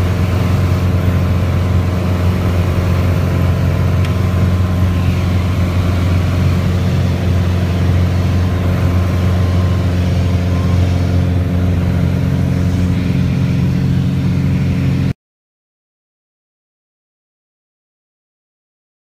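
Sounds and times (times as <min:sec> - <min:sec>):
aircraft engine drone in cockpit: 0:00.0 - 0:15.2.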